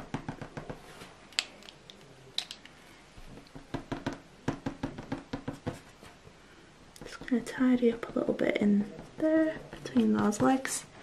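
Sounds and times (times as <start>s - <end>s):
eraser tapping on paper: 3.4s - 5.8s.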